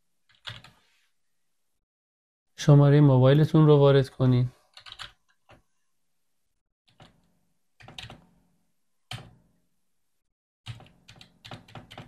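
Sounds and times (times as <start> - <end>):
keyboard typing: 0.3 - 0.8, 4.7 - 5.6, 6.9 - 8.3, 9.1 - 9.4, 10.7 - 12.0.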